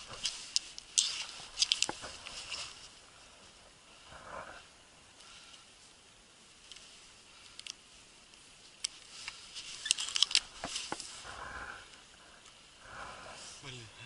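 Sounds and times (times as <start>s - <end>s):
footsteps crunching frosty grass: 0.0s - 3.7s, 10.4s - 11.3s.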